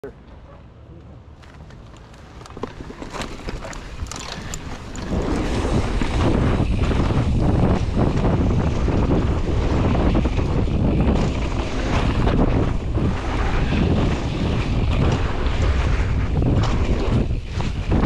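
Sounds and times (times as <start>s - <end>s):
bike rattling over bumpy ground: 1.3s - 18.0s
wind buffeting microphone: 1.8s - 18.0s.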